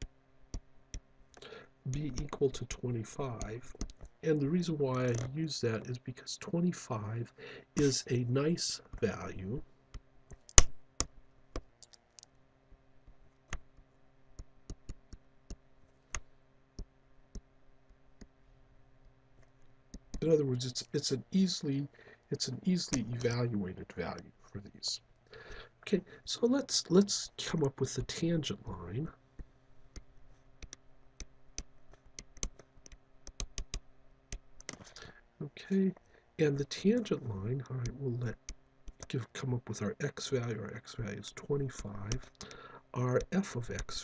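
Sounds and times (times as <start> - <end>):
faint steady hum: 0.0 - 44.0
stylus tapping on tablet screen: 10.3 - 12.0, 14.4 - 17.5, 19.9 - 20.2, 30.0 - 34.9.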